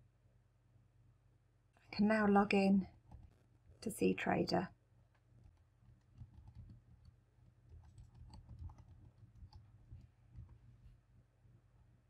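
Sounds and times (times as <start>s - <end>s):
faint keyboard typing: 2.8s - 3.5s, 5.1s - 11.0s.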